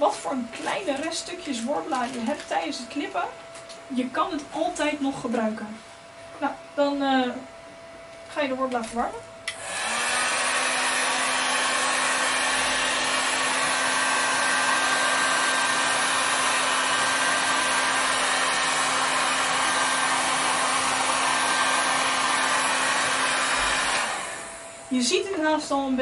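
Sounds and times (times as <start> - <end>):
heat gun blowing: 9.4 - 25.2.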